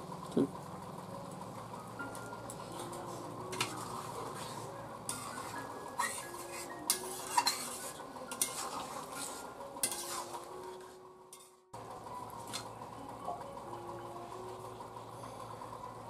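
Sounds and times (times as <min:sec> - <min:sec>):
metal spatula scraping a pot: 0:03.1 - 0:11.6.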